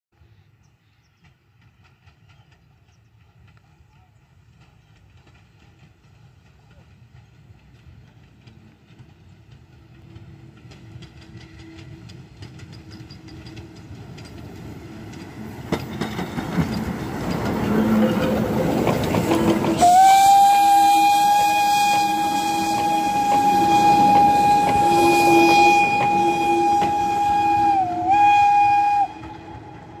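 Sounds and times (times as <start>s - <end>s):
steam train rumble and clatter: 0.2s - 30.0s
steam whistle blast: 19.8s - 30.0s.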